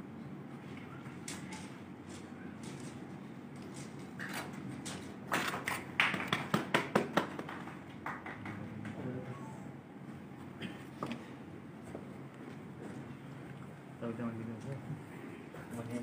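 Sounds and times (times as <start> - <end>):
low room noise: 0.0 - 16.0
people clapping: 5.4 - 9.2.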